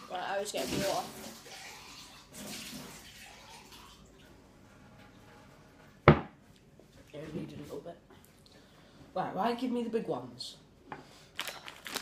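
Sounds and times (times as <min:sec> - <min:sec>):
water running from a tap: 0:00.0 - 0:04.2
loud thump: 0:06.0 - 0:06.4.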